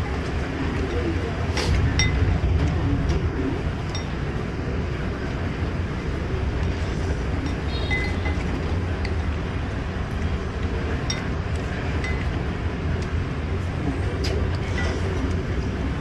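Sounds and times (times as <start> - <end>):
low rumble of street traffic: 0.0 - 16.0
spoon clinking on ceramic bowl: 7.5 - 8.4.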